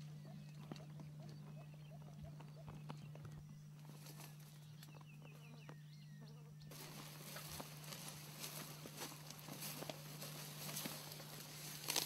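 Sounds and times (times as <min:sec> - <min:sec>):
bird chirping: 0:00.0 - 0:06.8
low steady hum: 0:00.0 - 0:12.0.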